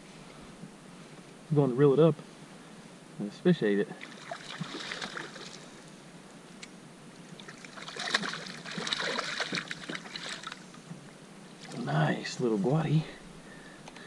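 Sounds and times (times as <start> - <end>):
fish splashing at water surface: 4.0 - 5.7, 7.4 - 10.6.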